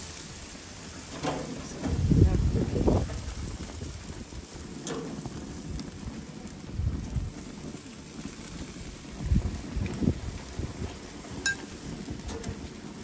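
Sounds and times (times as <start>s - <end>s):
wind buffeting microphone: 1.6s - 13.0s.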